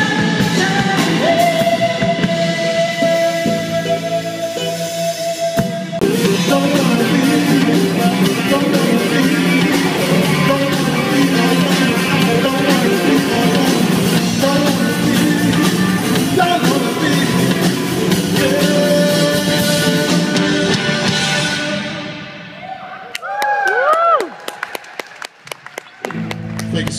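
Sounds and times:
person singing: 0:00.0 - 0:20.8
live rock band: 0:00.0 - 0:22.7.

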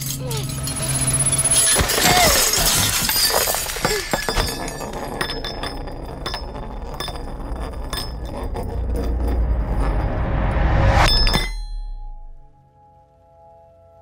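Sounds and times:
loud clattering crash: 0:00.4 - 0:07.4
metal disc rolling on wooden floor: 0:00.6 - 0:11.5.

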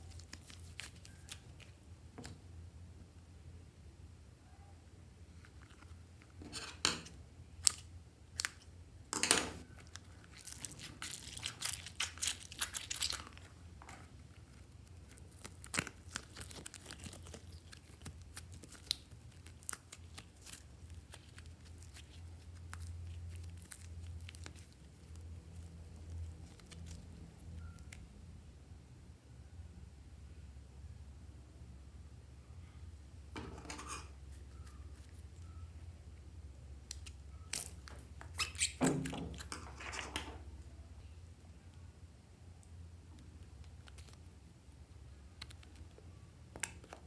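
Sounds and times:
low steady hum: 0:00.0 - 0:47.0
squishy toys snapping and tearing: 0:09.7 - 0:13.5, 0:14.9 - 0:27.0.

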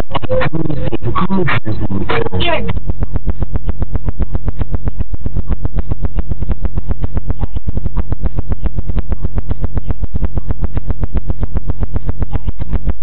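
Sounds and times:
deep pulsing bass tone: 0:00.0 - 0:13.0.

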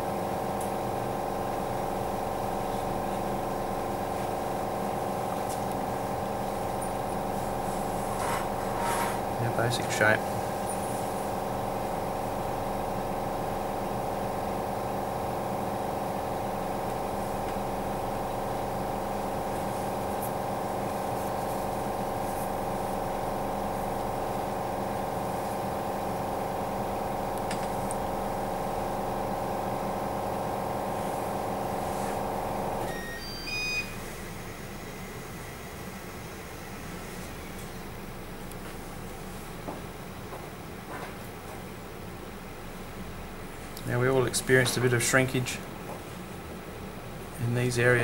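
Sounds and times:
steady machine hum: 0:00.0 - 0:48.0
short electronic beeps: 0:32.9 - 0:34.0.

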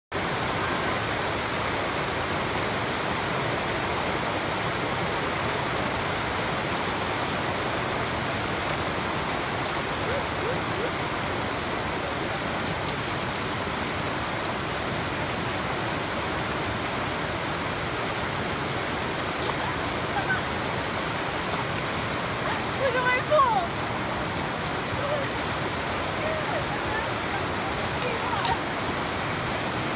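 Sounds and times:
creek rushing over rock: 0:00.1 - 0:29.9
faint sharp clicks: 0:12.6 - 0:13.1.

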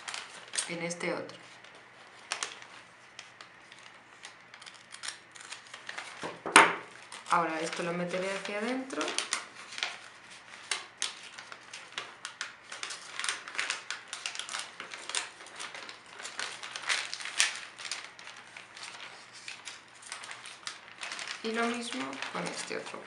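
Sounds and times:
metallic wrapping paper crinkling: 0:00.0 - 0:23.0.

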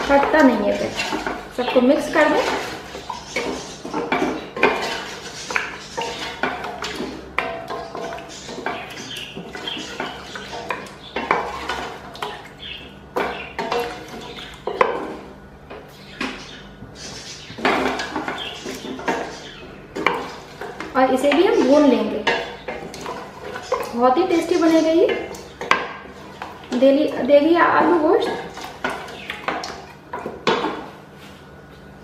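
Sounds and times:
spatula scraping metal pot: 0:00.0 - 0:12.1.

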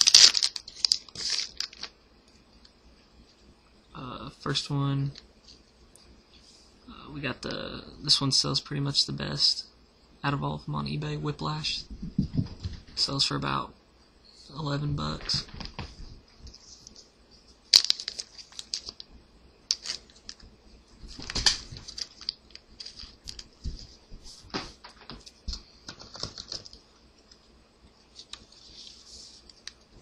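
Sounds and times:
wrapper snaps: 0:00.0 - 0:01.9, 0:17.7 - 0:19.0, 0:19.7 - 0:20.4
wrappers rustling: 0:00.0 - 0:01.9, 0:17.6 - 0:19.0, 0:21.1 - 0:24.0.

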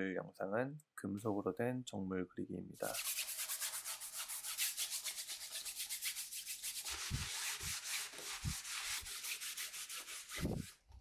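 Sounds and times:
brush scrubbing canvas: 0:02.8 - 0:10.8.

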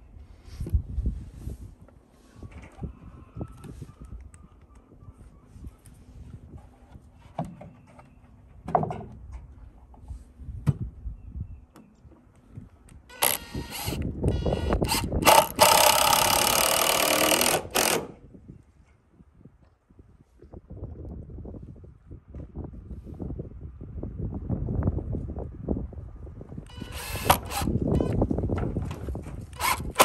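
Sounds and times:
cordless drill driving screw into wood: 0:13.1 - 0:18.2, 0:26.7 - 0:28.2, 0:29.5 - 0:30.0.

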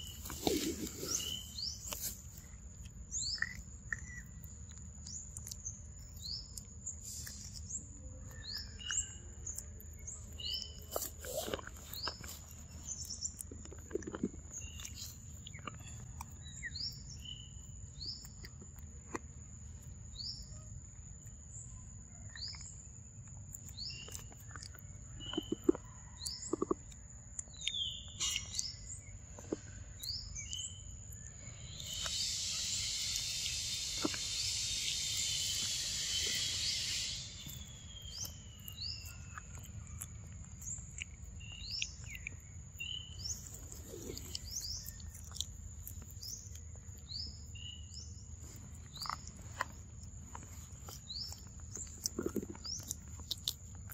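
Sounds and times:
bird chirping: 0:00.0 - 0:18.6, 0:19.4 - 0:53.9
monkey chewing wet clicks: 0:00.1 - 0:07.7, 0:31.8 - 0:42.4, 0:43.3 - 0:46.9, 0:48.9 - 0:53.9
loud insect chorus: 0:31.2 - 0:39.0
high insect whine: 0:31.5 - 0:38.2.

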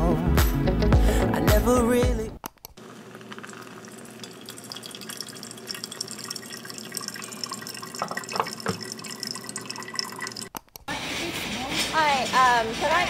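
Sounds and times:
hot water pouring from kettle: 0:02.8 - 0:10.5
coffee trickling and dripping: 0:02.9 - 0:10.5.

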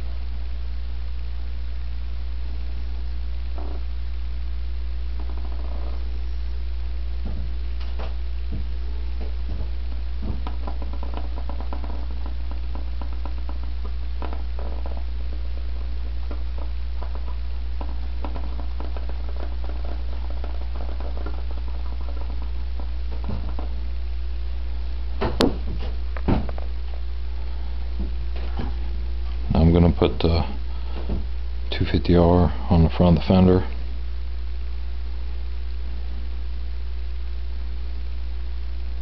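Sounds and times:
steady low hum: 0:00.0 - 0:39.0
sharp knocks: 0:07.2 - 0:23.8, 0:25.2 - 0:26.8.

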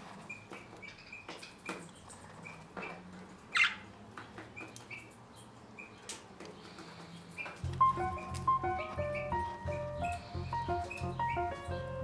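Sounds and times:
budgerigars chirping: 0:07.4 - 0:12.0.

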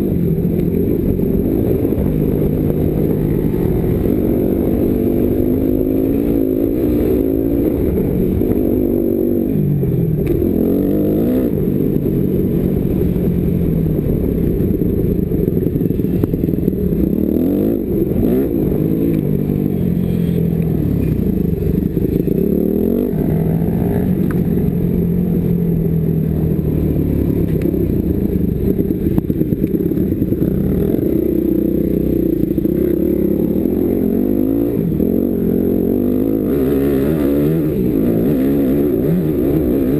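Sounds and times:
wind rumble on microphone: 0:00.0 - 0:19.9
dirt bike engine revving: 0:28.7 - 0:39.9.

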